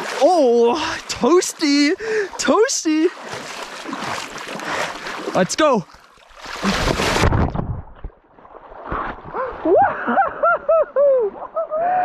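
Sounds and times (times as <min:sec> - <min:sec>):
man thrashing while swimming: 0:00.0 - 0:10.4
loud splash into water: 0:06.4 - 0:09.9.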